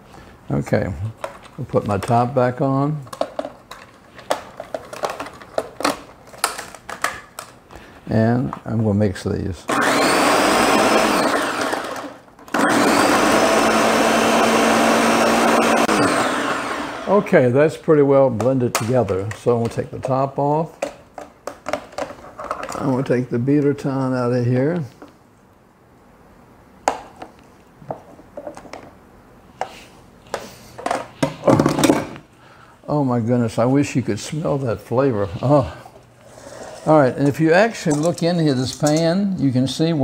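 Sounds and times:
plastic blender parts clattering: 3.1s - 7.6s, 20.8s - 23.1s, 30.3s - 32.2s
blender running: 9.7s - 17.3s.

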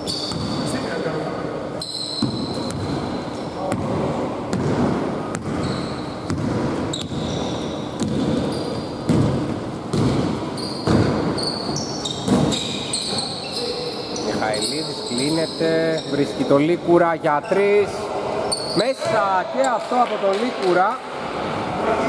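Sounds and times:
sneaker squeaks: 0.0s - 16.6s, 18.4s - 20.1s
basketball bouncing on hardwood: 2.2s - 3.0s, 6.3s - 7.3s, 8.0s - 8.5s, 9.1s - 12.6s.

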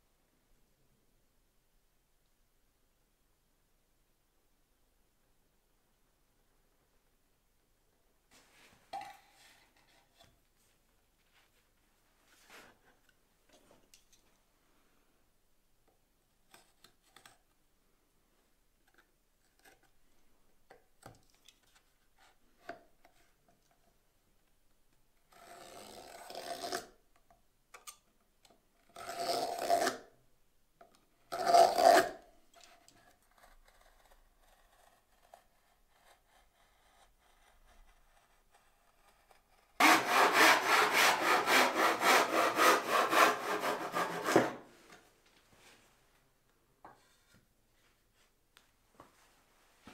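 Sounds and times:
knife scratching wood: 31.8s - 44.6s
handsaw cutting wood: 39.8s - 44.7s.

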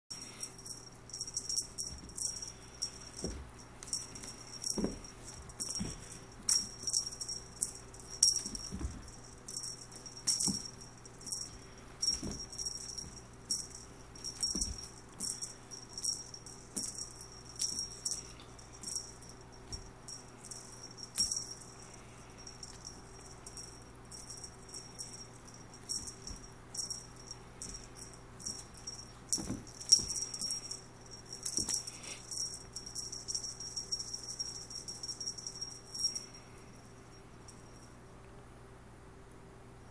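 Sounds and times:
small bell jingling: 0.1s - 38.0s
soft thumps: 3.0s - 6.9s, 8.3s - 9.2s, 10.2s - 15.4s, 27.6s - 30.6s.

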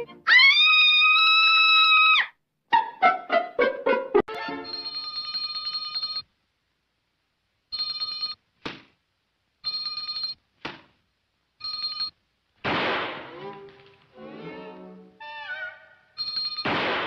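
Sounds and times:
trilling telephone bell: 4.6s - 6.2s, 9.7s - 10.4s, 11.6s - 12.1s, 16.2s - 16.7s.

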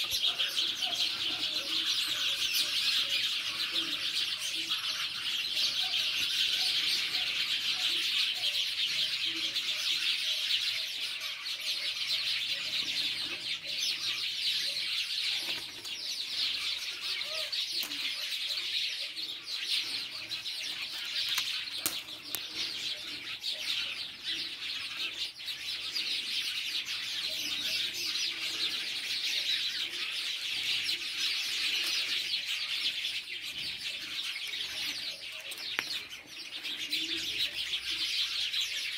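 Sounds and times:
small birds chirping: 0.0s - 38.9s.

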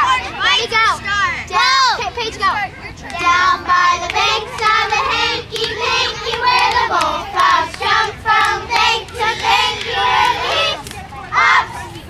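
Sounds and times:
girls singing in unison: 3.0s - 11.9s.

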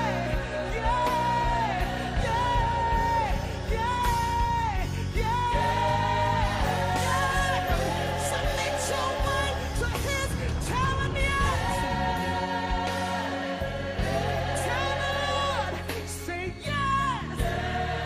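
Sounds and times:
slow gospel song: 0.0s - 18.0s.

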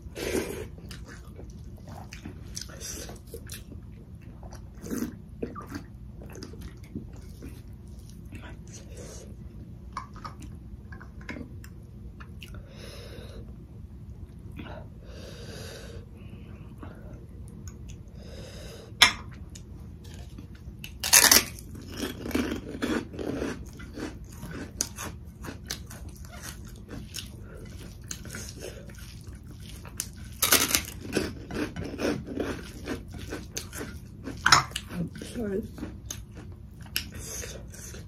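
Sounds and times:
crunchy chewing: 20.0s - 38.0s.

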